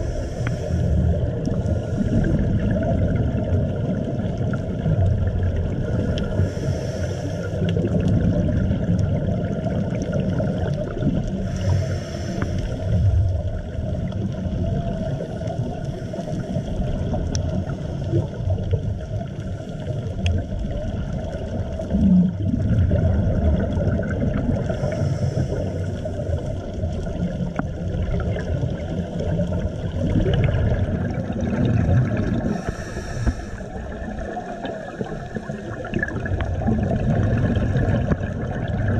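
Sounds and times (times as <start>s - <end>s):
regulator hiss: 0.0s - 0.9s, 6.4s - 7.6s, 11.5s - 13.0s, 32.5s - 33.8s
regulator bubbles rumbling: 0.0s - 38.9s.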